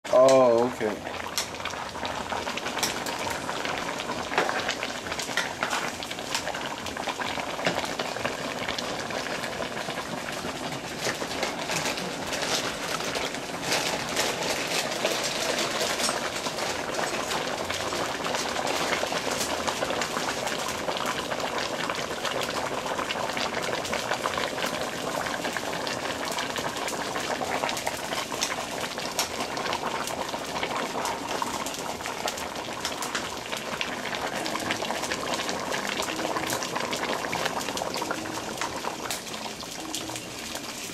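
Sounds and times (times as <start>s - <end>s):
soup boiling with small pops: 0.2s - 40.9s.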